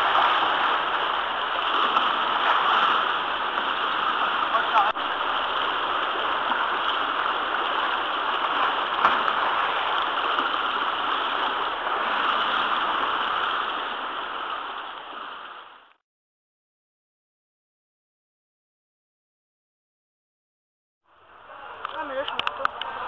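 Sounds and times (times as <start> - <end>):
paddles splashing water: 0.0 - 16.0, 21.2 - 23.0.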